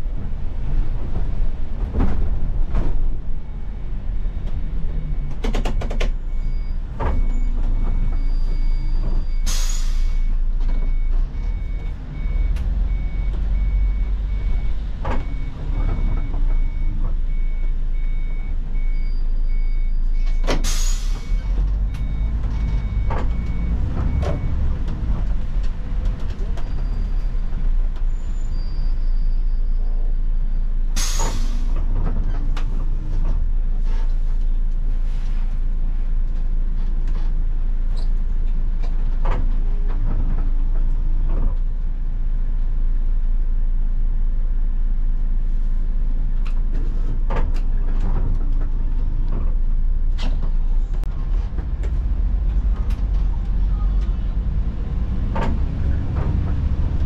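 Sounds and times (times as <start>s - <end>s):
bus engine rumble: 0.0s - 57.0s
air brake hiss: 9.5s - 10.2s, 20.6s - 21.3s, 31.0s - 31.8s.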